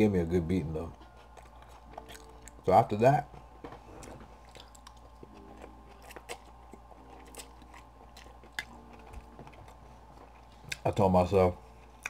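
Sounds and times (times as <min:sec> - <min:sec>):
chewing with wet mouth clicks: 0:01.1 - 0:02.7, 0:04.0 - 0:11.0.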